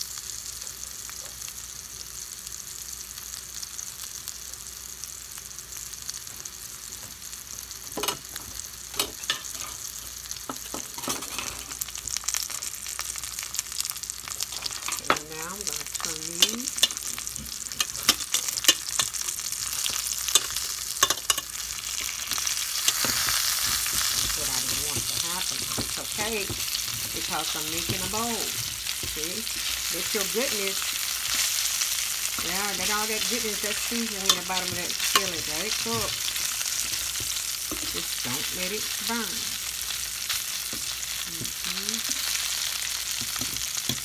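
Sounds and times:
potatoes sizzling in oil: 0.0 - 44.0
metal utensil scraping pan: 9.0 - 9.9, 10.5 - 11.8, 14.4 - 38.4.

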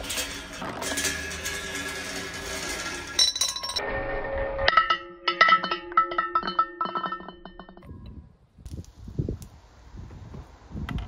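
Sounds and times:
balls clinking in a glass vase: 0.0 - 3.8
balls rolling along a steel rail: 0.0 - 7.9.

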